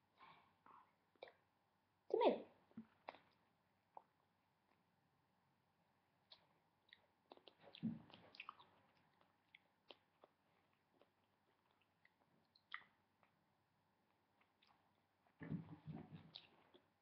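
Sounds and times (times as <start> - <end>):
chewing tomato: 6.3 - 15.0.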